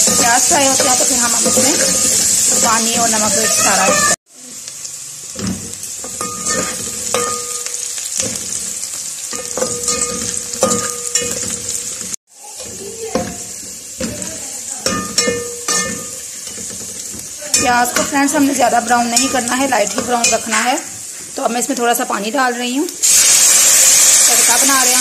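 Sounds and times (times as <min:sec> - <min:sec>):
spoon scraping and knocking pot: 0:00.0 - 0:04.2, 0:05.4 - 0:21.0
onions sizzling in pot: 0:00.0 - 0:25.0.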